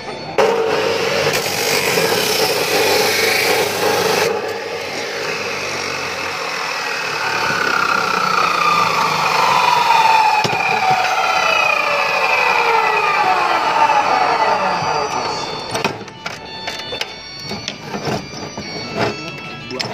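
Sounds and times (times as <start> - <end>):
saw disc whine winding down: 0.0 - 19.9
chop saw grinding steel: 0.1 - 19.9.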